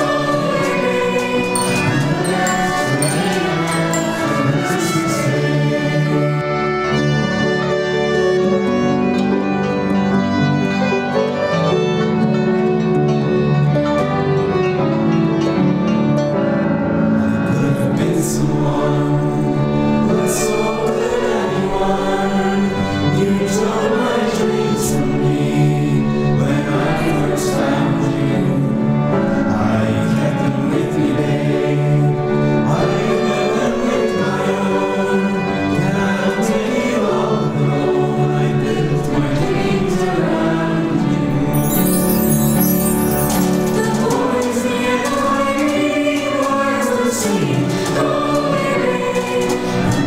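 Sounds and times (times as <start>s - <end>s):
concertinas: 0.0s - 10.6s, 11.2s - 50.0s
choir singing: 0.0s - 15.3s, 17.2s - 50.0s
harp: 0.3s - 7.4s, 41.4s - 46.2s
sharp percussion strikes: 1.6s - 4.8s, 41.5s - 44.4s
hissing percussion: 1.6s - 4.9s, 41.5s - 44.8s.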